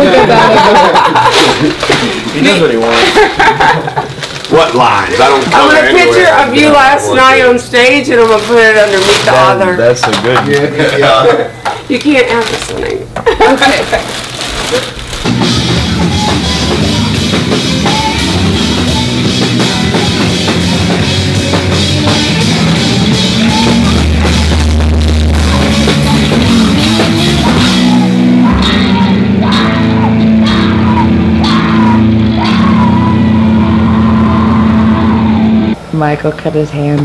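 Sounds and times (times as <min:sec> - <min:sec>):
heavy rock band playing: 0:15.0 - 0:35.8
pounding drum hits: 0:15.2 - 0:35.2.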